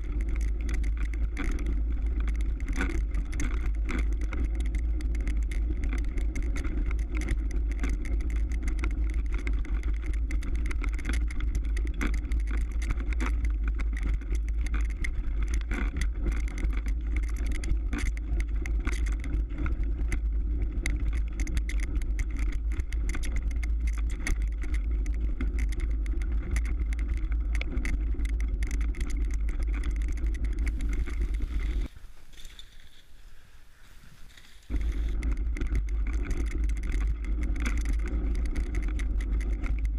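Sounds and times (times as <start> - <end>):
bike clicks and rattles: 0.0 - 39.9
bike tyres rumbling on snow: 0.0 - 39.9
wind on microphone: 13.9 - 39.9.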